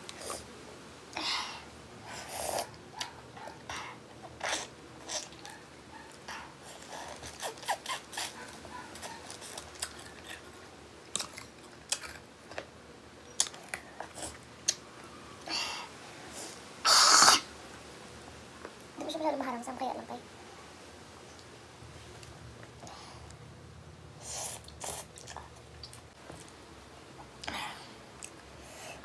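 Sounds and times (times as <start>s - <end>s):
person chewing food crunching: 2.6s - 12.7s, 13.3s - 14.8s, 24.6s - 26.6s, 28.2s - 28.5s.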